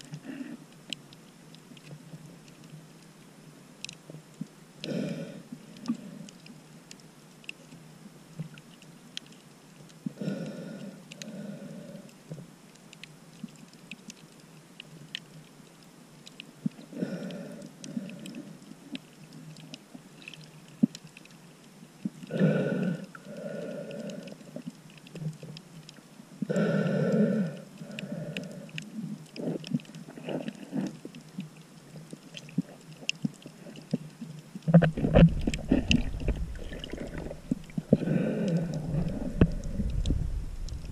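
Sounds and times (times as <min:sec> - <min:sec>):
faint sharp clicks: 0:00.0 - 0:05.0, 0:12.1 - 0:22.3
breathing through a snorkel: 0:22.3 - 0:24.6, 0:26.5 - 0:31.0, 0:34.9 - 0:40.9.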